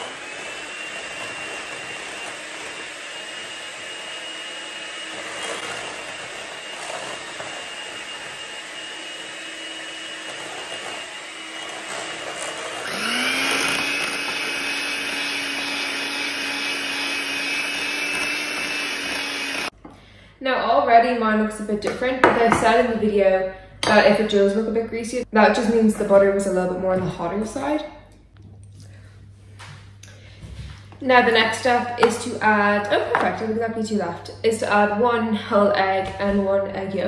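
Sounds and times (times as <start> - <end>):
electric hand mixer whisking: 0.0 - 19.7.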